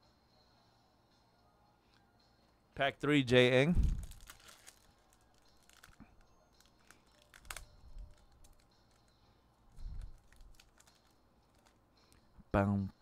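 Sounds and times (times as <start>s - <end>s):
foil wrapper crinkling: 3.8s - 9.1s, 9.8s - 11.8s.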